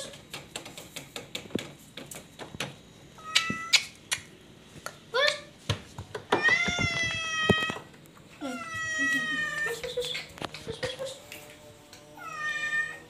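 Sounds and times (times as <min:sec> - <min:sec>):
cat meowing: 0:12.2 - 0:13.0.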